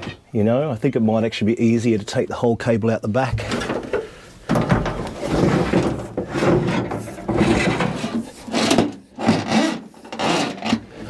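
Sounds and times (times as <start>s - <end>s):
cable scraping against hull: 4.9s - 11.0s.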